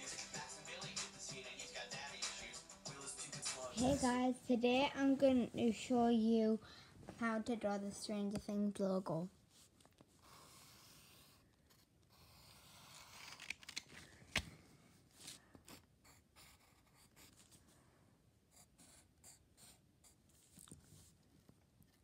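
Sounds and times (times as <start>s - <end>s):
pen scratching on paper: 10.2s - 13.4s, 15.6s - 17.6s, 18.5s - 20.2s.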